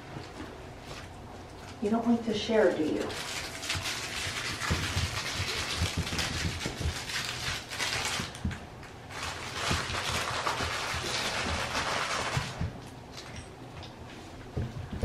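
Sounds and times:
crinkle-paper toy crackling: 2.8s - 12.6s.

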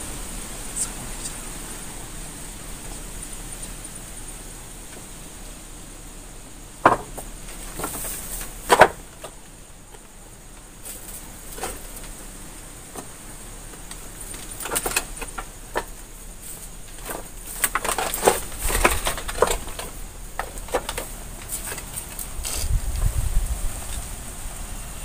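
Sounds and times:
scrapes and rustles of debris: 0.0s - 24.3s
knocks: 6.8s - 8.1s.

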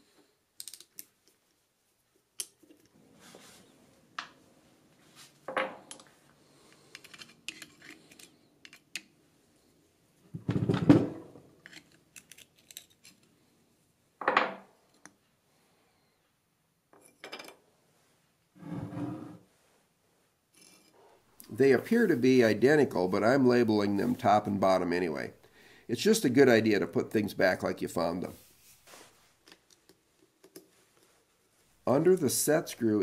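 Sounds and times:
metal parts knocking on workbench: 5.5s - 5.8s.

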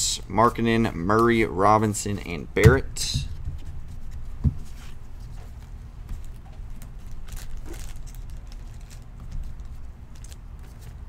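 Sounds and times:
low steady hum: 0.0s - 11.0s
trading cards clicking and rustling: 6.0s - 11.0s.

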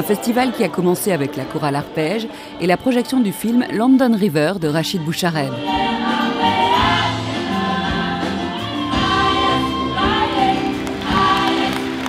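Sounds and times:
choir singing: 5.4s - 12.0s.

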